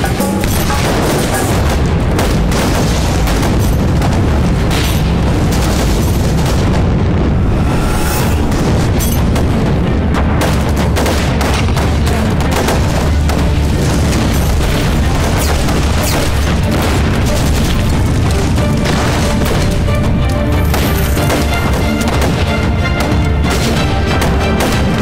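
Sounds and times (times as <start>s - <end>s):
rapid gunfire: 0.0s - 7.2s, 8.5s - 25.0s
dramatic music score: 0.0s - 25.0s
explosion booms: 0.8s - 19.9s.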